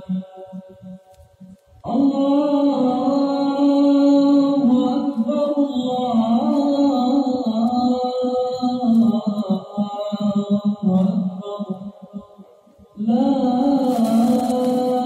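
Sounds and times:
man chanting call to prayer: 1.9s - 15.0s.

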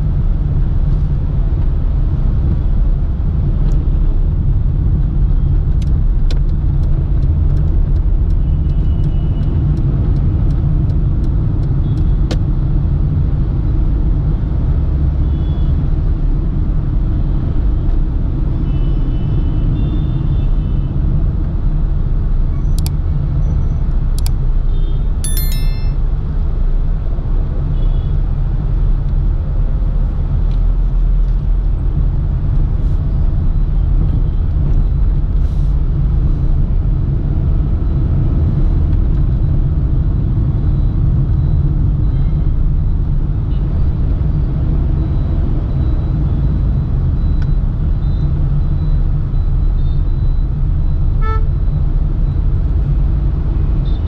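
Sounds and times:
engine and road rumble: 0.0s - 54.0s
short high tones: 25.2s - 26.0s.

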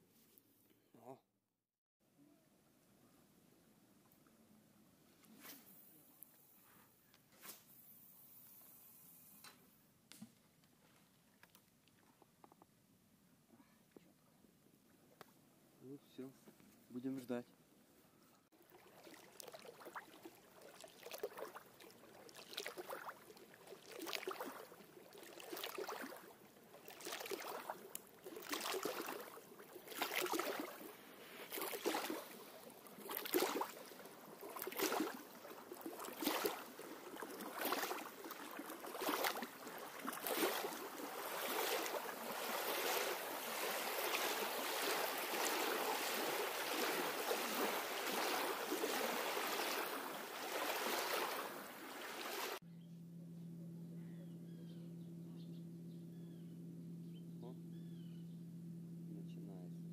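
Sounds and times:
river waves lapping on shore: 18.6s - 52.6s.

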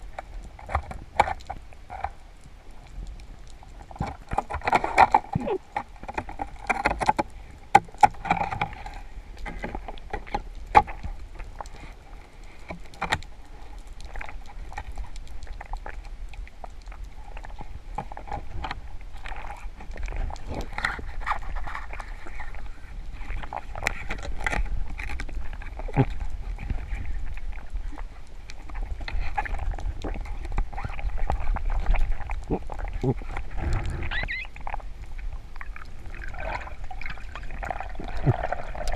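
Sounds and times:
small sharp clicks and crackles: 0.0s - 38.9s
low underwater rumble: 13.9s - 38.9s.

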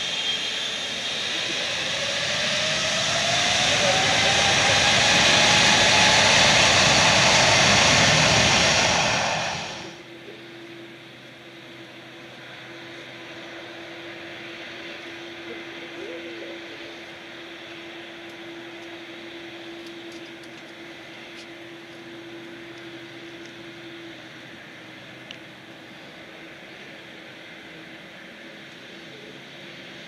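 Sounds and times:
low hum: 0.0s - 11.0s
distant jet engines idling: 0.0s - 30.0s.

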